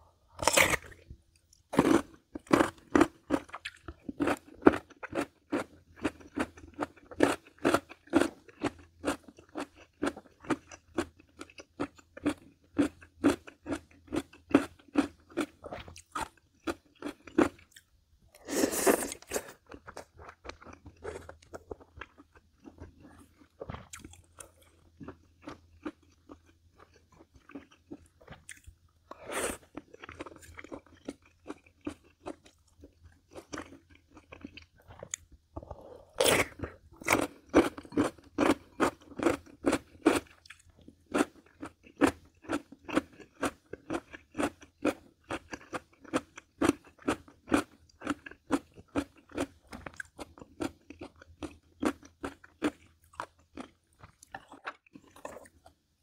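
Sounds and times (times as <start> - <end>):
person chewing crunchy food: 0.0 - 55.9.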